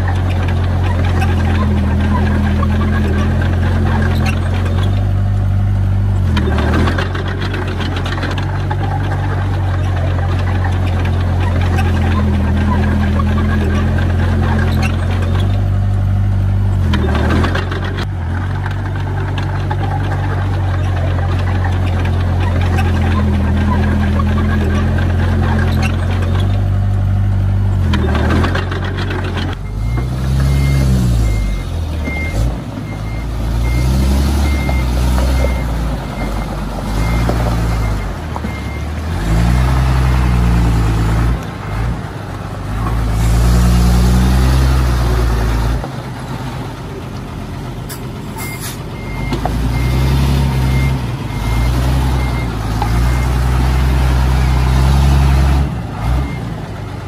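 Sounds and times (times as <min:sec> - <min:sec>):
bulldozer diesel engine under load: 0:00.0 - 0:57.0
vehicle reversing beeper: 0:29.5 - 0:40.7, 0:47.9 - 0:57.0.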